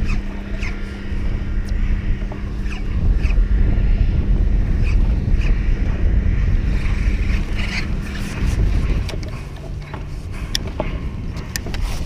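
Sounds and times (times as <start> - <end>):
faint steady hum: 0.0 - 12.0
wind rumbling on microphone: 0.0 - 12.0
small clicks and ticks: 6.8 - 12.0.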